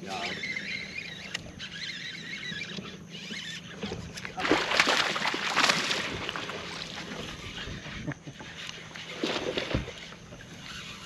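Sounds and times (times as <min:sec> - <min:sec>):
fish thrashing and splashing: 0:03.9 - 0:07.6, 0:09.0 - 0:10.2.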